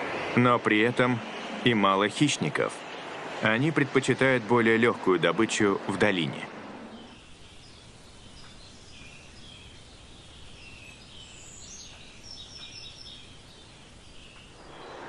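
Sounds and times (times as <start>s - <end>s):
low steady hiss: 0.0s - 15.0s
small birds chirping: 6.9s - 15.0s.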